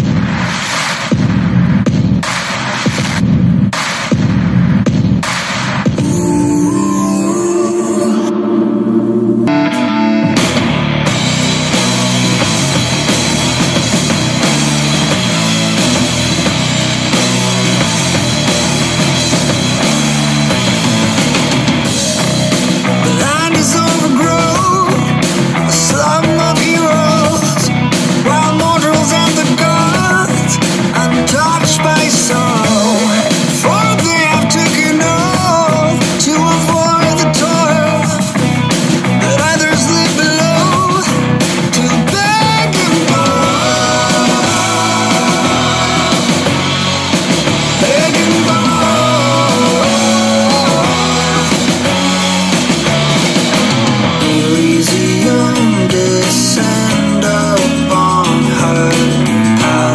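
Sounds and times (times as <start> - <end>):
rock music backing track: 0.0 - 59.9
song with singing and guitar: 5.9 - 59.9
wavering lead melody: 6.0 - 22.5.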